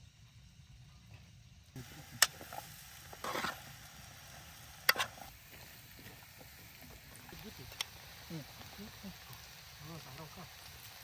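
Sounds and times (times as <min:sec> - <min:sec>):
food sizzling in oil: 0:01.8 - 0:11.0
stirring scrape: 0:02.5 - 0:03.6, 0:04.9 - 0:05.3.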